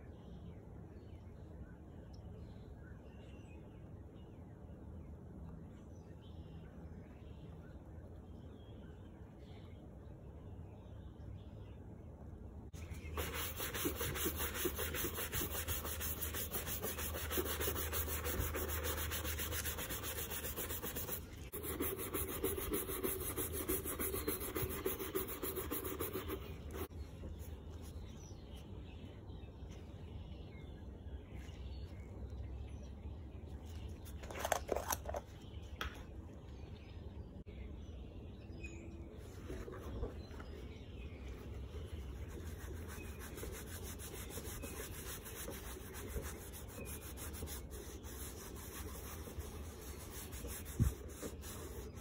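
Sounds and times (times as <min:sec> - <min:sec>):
brush scrubbing leather: 0:12.9 - 0:26.9, 0:42.2 - 0:52.0
fingers rubbing cream into leather: 0:13.1 - 0:26.9.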